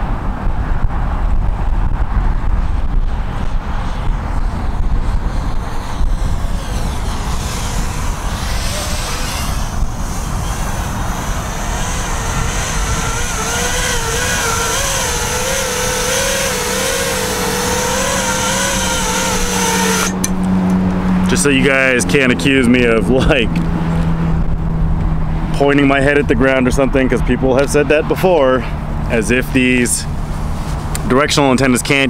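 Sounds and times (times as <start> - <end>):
wind rumbling on microphone: 0.0 - 32.0
quadcopter motors whining: 2.6 - 24.7.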